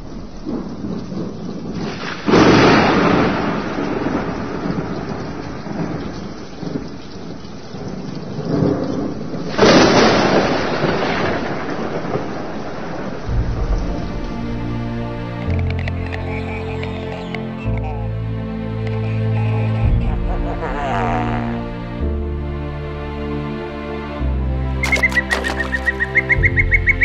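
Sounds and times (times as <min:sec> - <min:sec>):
thunder rolling: 0:00.0 - 0:15.8
steady rain: 0:00.0 - 0:22.0.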